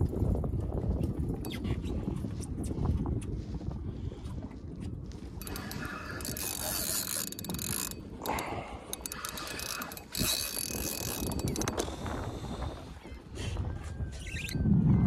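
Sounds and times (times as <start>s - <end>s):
fishing reel drag clicking: 5.4s - 12.4s.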